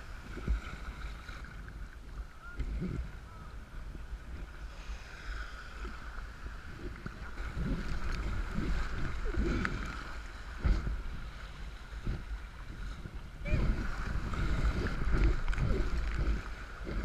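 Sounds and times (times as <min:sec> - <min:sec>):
water sloshing around kayak: 0:00.0 - 0:17.0
wind buffeting microphone: 0:05.7 - 0:17.0.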